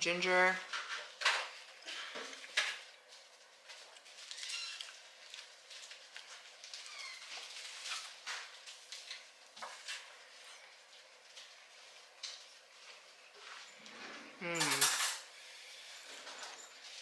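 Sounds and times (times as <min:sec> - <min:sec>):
chewing and mouth sounds: 0:03.4 - 0:09.2.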